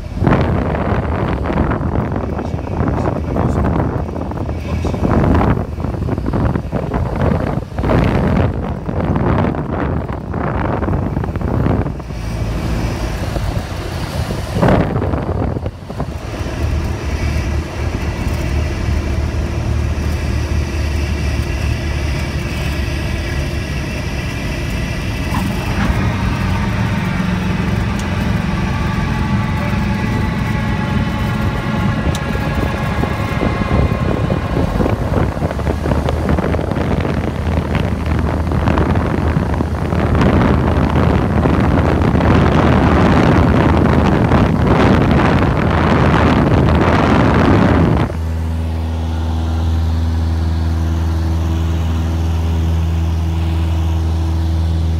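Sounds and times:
airplane engine and propeller: 0.0s - 54.9s
wind noise: 0.0s - 54.9s
higher steady tones: 11.0s - 39.0s.

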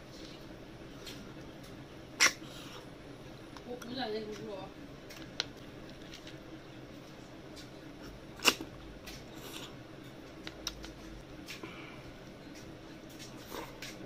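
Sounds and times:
mouth clicks and smacks: 10.3s - 11.6s.

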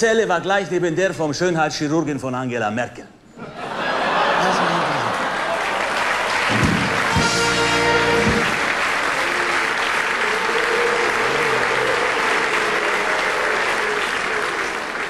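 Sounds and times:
audience applauding: 4.0s - 15.0s
band holding a chord: 6.8s - 8.7s.

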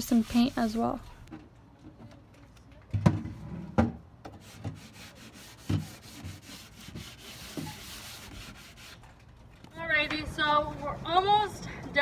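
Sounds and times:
sandpaper rubbing on wood: 0.0s - 1.0s, 4.4s - 9.0s.

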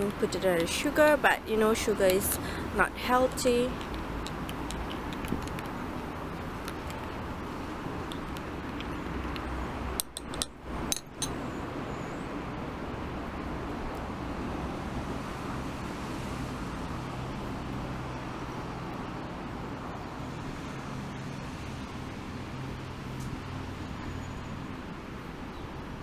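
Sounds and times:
city road traffic rumble: 0.0s - 26.0s
sharp clicks: 3.7s - 5.8s.

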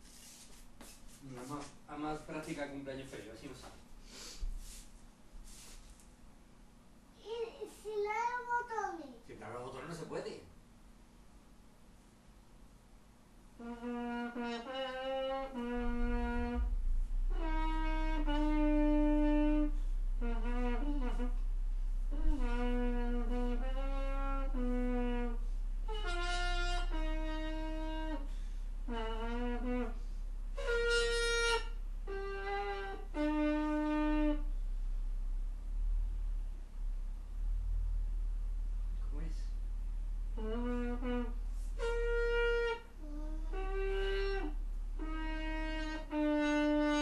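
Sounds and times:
trumpet playing slow tune: 13.6s - 34.8s, 40.3s - 47.0s.

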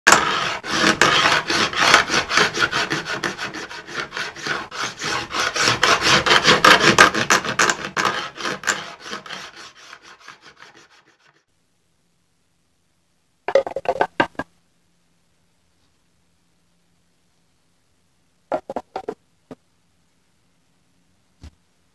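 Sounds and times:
file scraping wood: 0.1s - 11.5s.

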